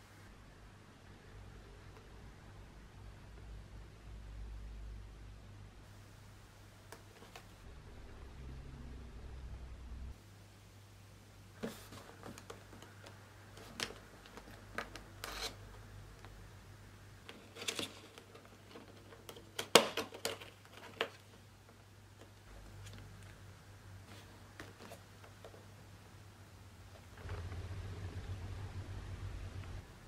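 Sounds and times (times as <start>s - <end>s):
faint low hum: 0.0s - 30.0s
cardboard crackles: 11.6s - 15.6s, 17.3s - 23.4s.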